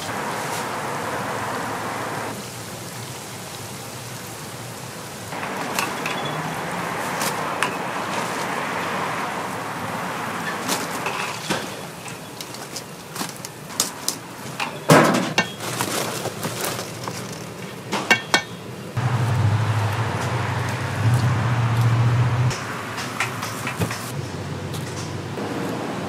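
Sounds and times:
frying oil sizzling: 0.0 - 15.6, 18.3 - 24.2
utensils clattering: 5.4 - 8.3, 10.4 - 18.7.

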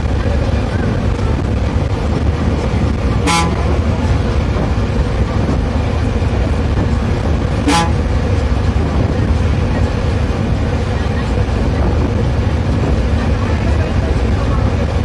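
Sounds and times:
bus engine rumble and road noise: 0.0 - 15.0
bus horn toots: 3.2 - 4.1, 7.6 - 8.1.

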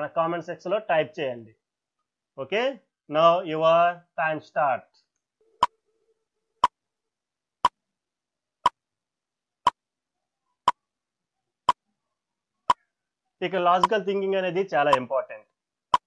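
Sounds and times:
timer ticking: 14.9 - 15.1.

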